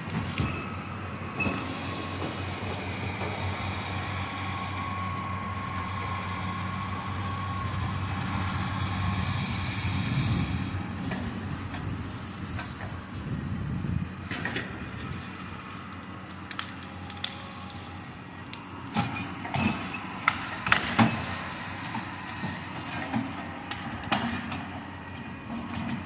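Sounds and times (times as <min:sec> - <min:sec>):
diesel engine and hydraulics running: 0:00.0 - 0:26.0
wood cracking and snapping: 0:15.9 - 0:17.9.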